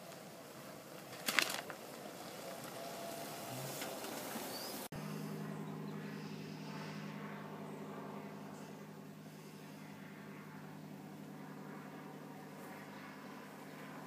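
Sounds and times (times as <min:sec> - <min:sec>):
car driving on gravel: 0:00.0 - 0:04.9
low engine hum: 0:00.0 - 0:14.0
loud crackle: 0:01.0 - 0:01.8.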